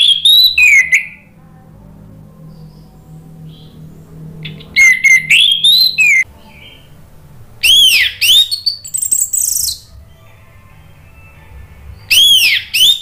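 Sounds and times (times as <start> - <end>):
bird singing whistled notes: 0.0 - 1.3, 4.4 - 6.9, 7.6 - 9.9, 11.9 - 13.0
high bird chatter: 0.0 - 1.3, 2.4 - 7.0, 7.6 - 9.9, 12.0 - 13.0.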